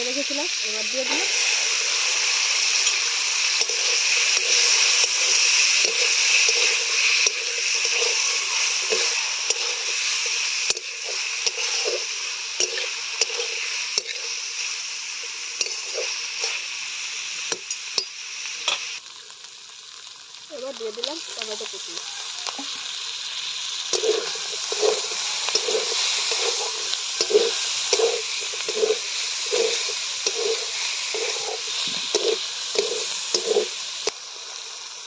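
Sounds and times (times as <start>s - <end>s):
potatoes sizzling in oil: 0.0s - 35.0s
spatula scraping and clinking pan: 2.8s - 14.3s, 15.6s - 16.6s, 23.9s - 33.8s.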